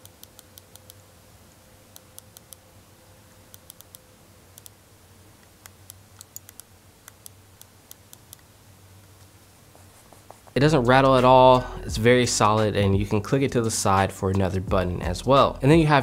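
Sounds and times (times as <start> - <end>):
mouse scroll wheel ticking: 5.6 - 8.4.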